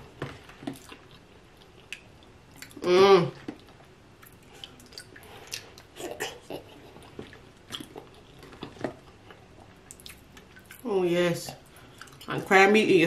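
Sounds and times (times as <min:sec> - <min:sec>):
wet chewing and lip smacking: 0:00.6 - 0:02.8, 0:03.4 - 0:10.9, 0:11.6 - 0:12.3.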